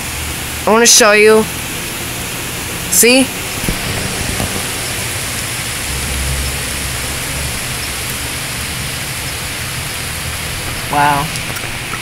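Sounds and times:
heavy rain on leaves: 0.8 - 12.0
thunder rumble: 1.6 - 10.9.

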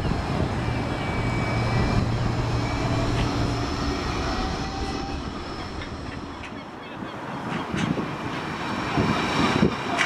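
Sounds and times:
faint whining tones: 0.0 - 6.6
tram electric drive hum: 0.0 - 10.0.

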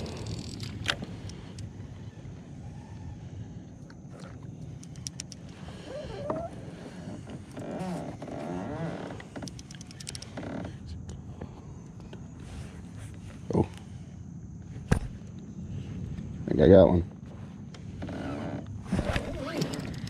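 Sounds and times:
fishing reel clicking: 0.0 - 1.7, 4.7 - 5.7, 9.4 - 10.4, 19.4 - 20.0
steady low rumble: 0.0 - 8.4, 9.1 - 18.0.

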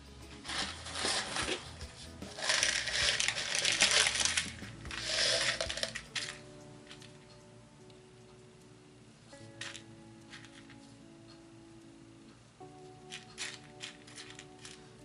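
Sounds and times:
seashells rattling into a dish: 2.2 - 6.4, 13.4 - 14.8.

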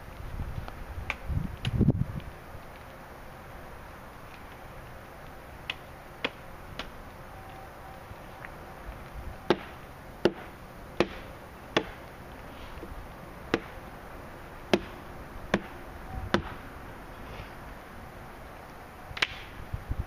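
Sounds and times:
blade chopping wood: 9.5 - 12.0, 13.5 - 13.8, 14.7 - 16.6.

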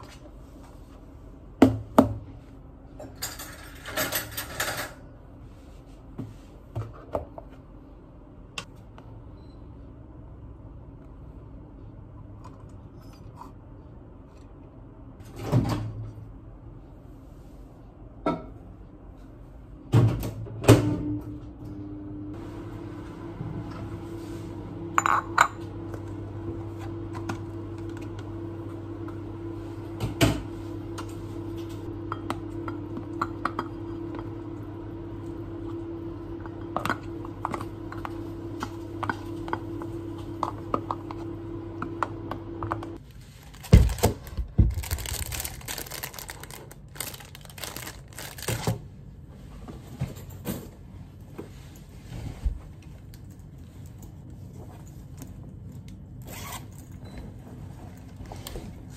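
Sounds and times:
appliance hum: 0.0 - 58.9
bowl clinking and scraping on countertop: 23.7 - 26.1.

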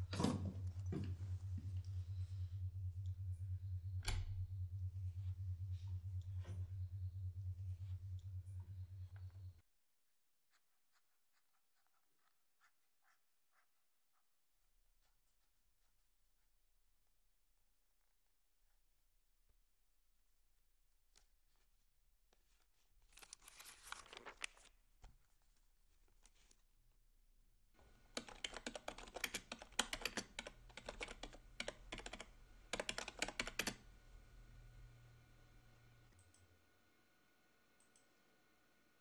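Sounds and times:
keyboard typing: 27.8 - 33.9.

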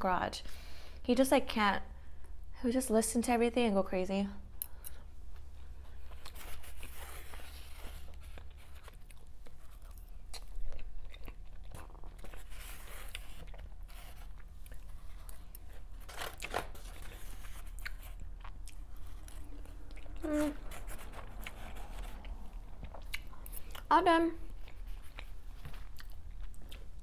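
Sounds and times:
chewing and biting: 4.6 - 23.9, 24.5 - 27.0.

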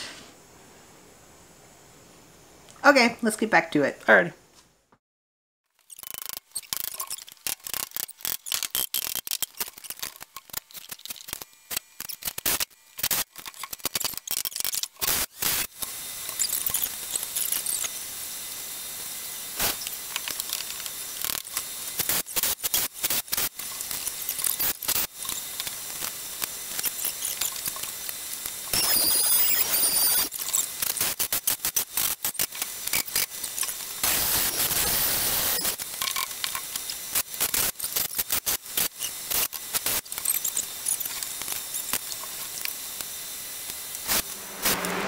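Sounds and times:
steady hiss: 0.0 - 3.1, 15.0 - 45.0.

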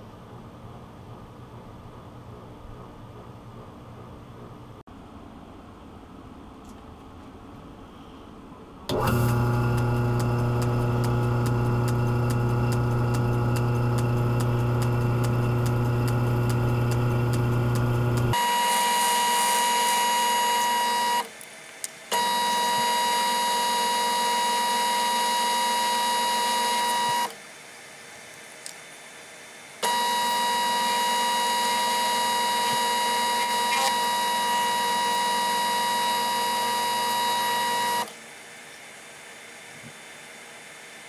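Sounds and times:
metal lathe milling whine: 22.1 - 27.3, 29.8 - 38.1.

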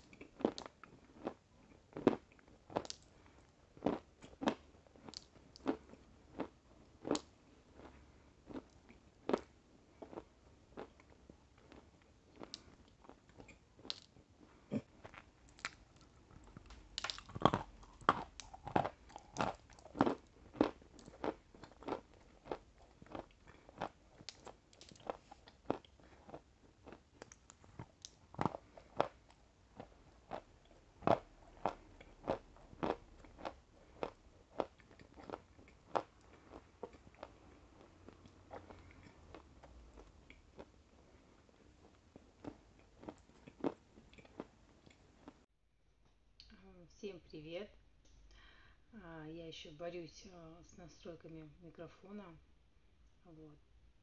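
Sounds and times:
crunchy biting and chewing: 3.8 - 14.1, 15.0 - 41.2, 41.8 - 45.4.

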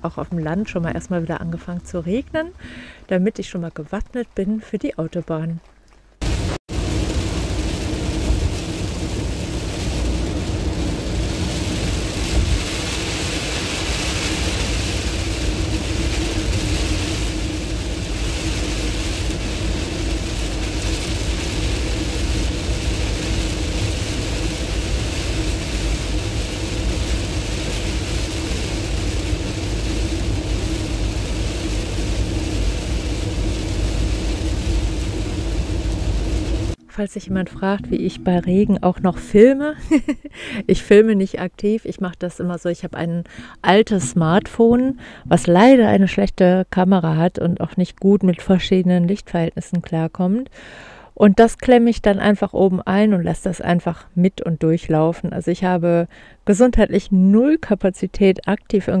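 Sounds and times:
rain on windscreen: 1.4 - 36.8
engine and road rumble: 5.6 - 36.9
tyre spray hissing: 6.2 - 36.8.

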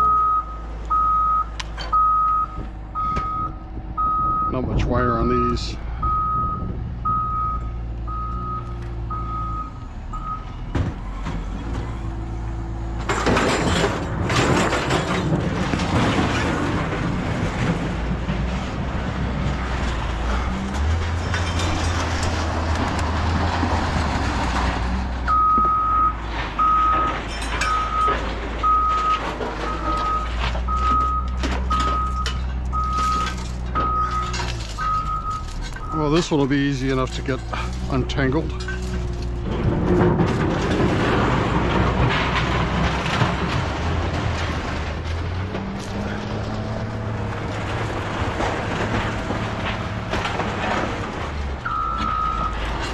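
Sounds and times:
reversing alarm beeping: 0.0 - 4.6, 6.0 - 10.6, 25.3 - 36.1, 51.6 - 52.6
low engine hum: 0.0 - 52.9.

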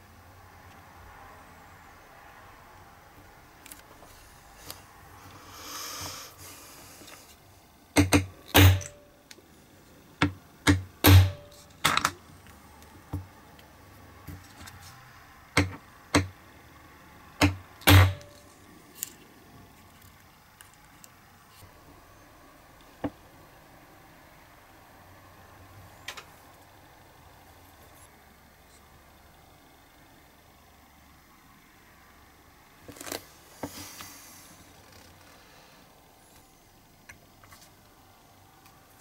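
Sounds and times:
hammer tapping hole punch: 8.0 - 9.0, 10.2 - 12.1, 15.6 - 16.4, 17.4 - 18.4.

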